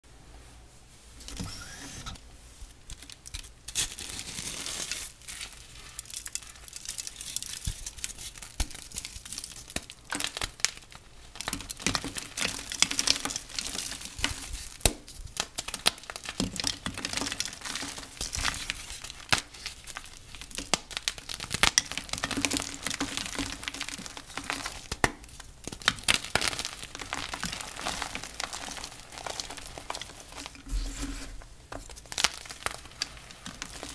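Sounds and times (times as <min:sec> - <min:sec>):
chalk being crushed: 0:21.7 - 0:33.9.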